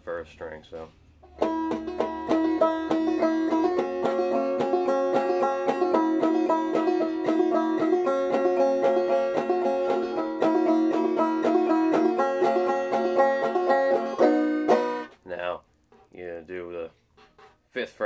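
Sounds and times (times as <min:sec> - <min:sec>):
banjo plucking and strumming: 0:01.2 - 0:15.4.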